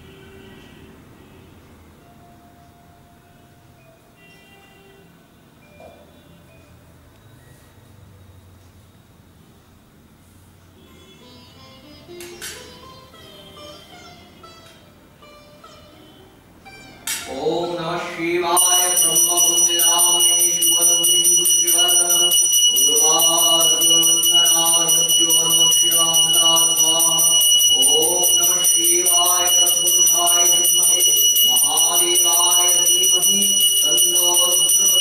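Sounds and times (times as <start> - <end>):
hand bell ringing rapidly: 18.6 - 35.0.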